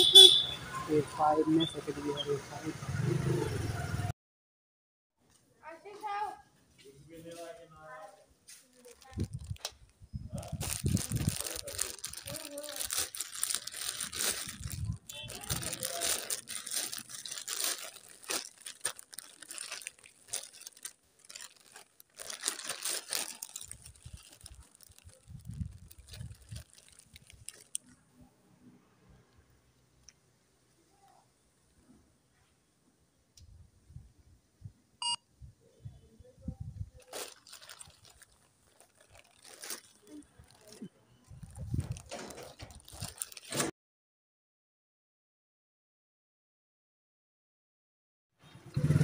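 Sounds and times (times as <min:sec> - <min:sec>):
plastic packaging crinkling: 0:08.7 - 0:28.0, 0:37.0 - 0:43.7
short electronic beep: 0:35.0 - 0:35.2.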